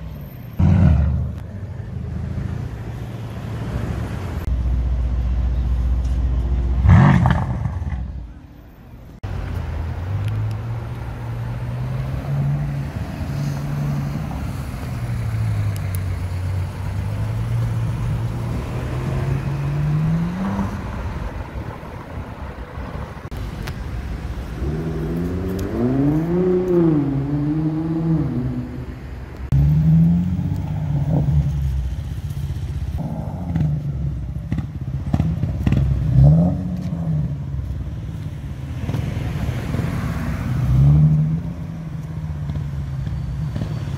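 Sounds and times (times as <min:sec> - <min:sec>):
street traffic hum: 0:00.0 - 0:43.9
sports car engine revving: 0:24.4 - 0:28.8, 0:32.8 - 0:37.5.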